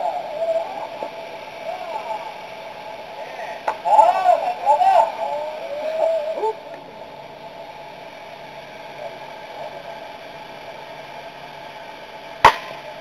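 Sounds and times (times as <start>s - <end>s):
bat cracking against ball: 12.4s - 12.9s.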